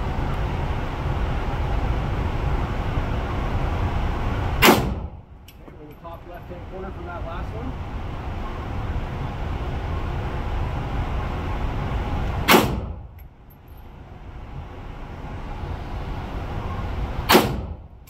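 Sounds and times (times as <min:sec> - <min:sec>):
steady low rumble: 0:00.0 - 0:18.0
rifle shots: 0:04.6 - 0:05.2, 0:12.5 - 0:13.0, 0:17.3 - 0:17.8.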